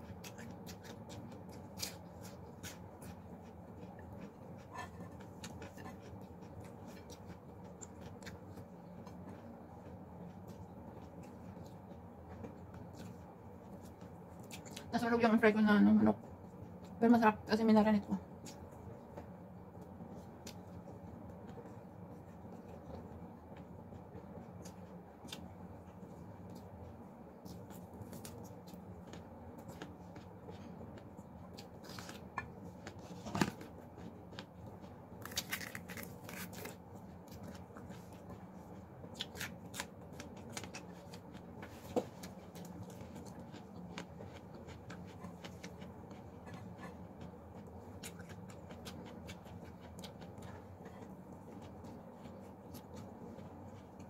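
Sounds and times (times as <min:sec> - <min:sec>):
faint low hum: 0:00.0 - 0:54.0
fingers tearing fried chicken: 0:35.2 - 0:36.8.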